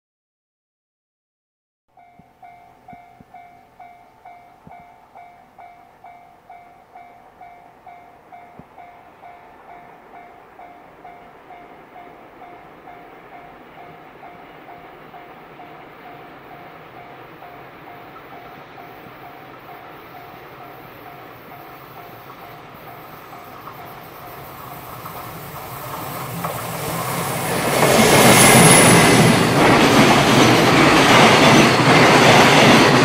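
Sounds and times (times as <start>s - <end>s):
freight train running: 2.0s - 33.0s.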